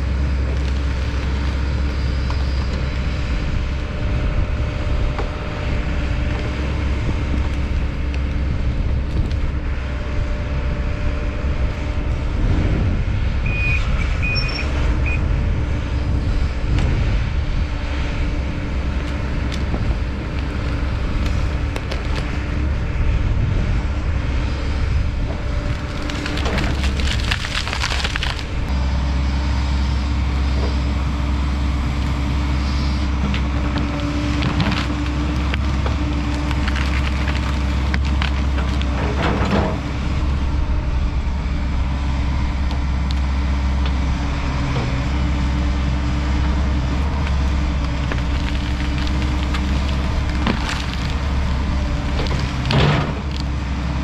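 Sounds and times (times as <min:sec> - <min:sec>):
wood cracking and splintering: 0:00.0 - 0:09.6, 0:18.6 - 0:22.9, 0:25.1 - 0:28.8, 0:33.0 - 0:41.0, 0:42.6 - 0:54.0
excavator diesel engine running: 0:00.0 - 0:54.0.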